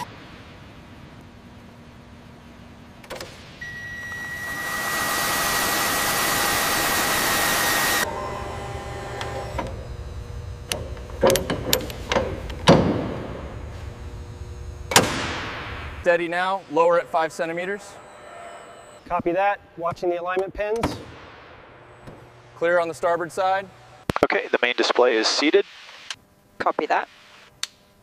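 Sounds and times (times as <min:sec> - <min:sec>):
electric motor whining: 0:04.1 - 0:15.0.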